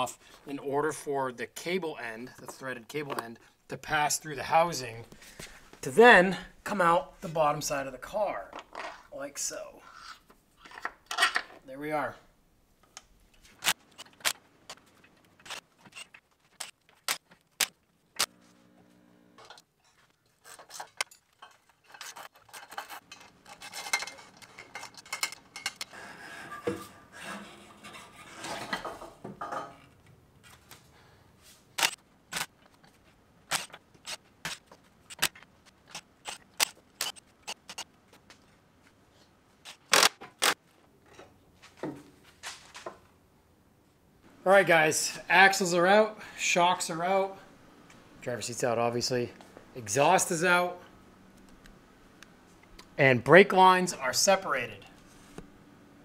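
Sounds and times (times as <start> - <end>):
metal tools clinking and scraping: 10.0 - 11.6, 19.4 - 27.0.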